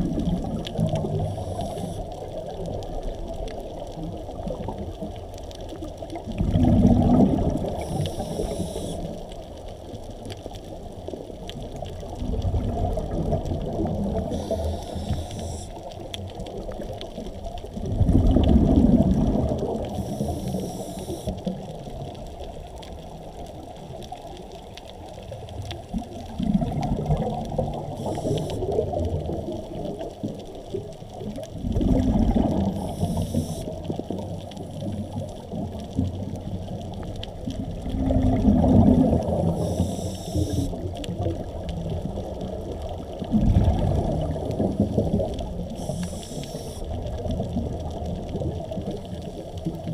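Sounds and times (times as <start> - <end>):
muffled underwater water noise: 0.0 - 49.9
faint hisses: 0.8 - 2.5, 7.4 - 9.3, 14.1 - 16.0, 19.7 - 21.6, 27.8 - 29.0, 32.6 - 35.0, 39.2 - 40.9, 45.5 - 47.1.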